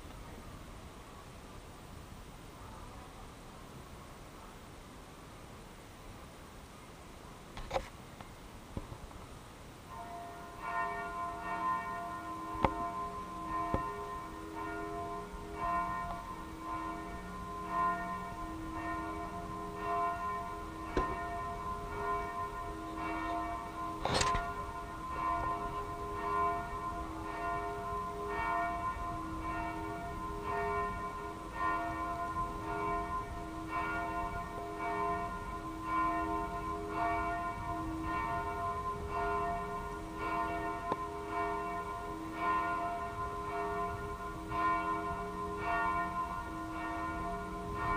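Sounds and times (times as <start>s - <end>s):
church bells ringing: 9.9s - 47.9s.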